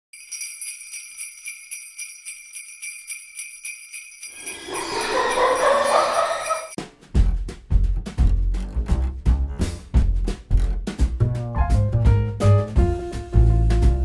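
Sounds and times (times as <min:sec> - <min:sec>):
sleigh bells shaken: 0:00.1 - 0:06.8.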